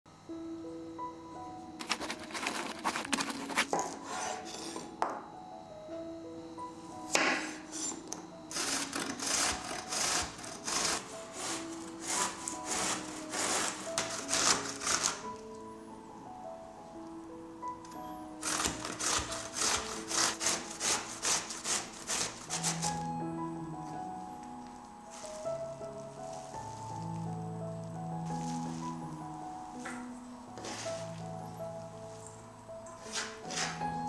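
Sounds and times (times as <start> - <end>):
background music: 0.1 - 34.0
grating on a metal grater: 1.8 - 4.7, 8.5 - 15.2, 18.4 - 22.9.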